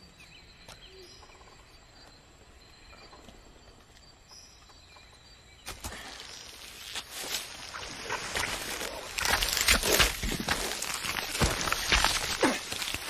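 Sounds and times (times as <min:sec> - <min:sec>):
faint birds: 0:00.0 - 0:13.0
faint insects: 0:00.0 - 0:13.0
rustling thump into undergrowth: 0:05.6 - 0:13.0.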